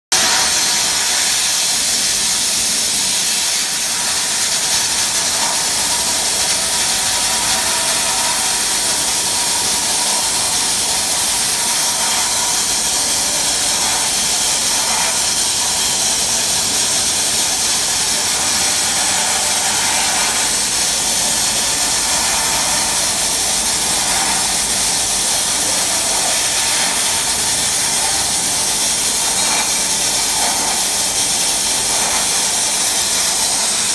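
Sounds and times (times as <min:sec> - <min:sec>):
sandblasting nozzle hissing: 0:00.2 - 0:33.9.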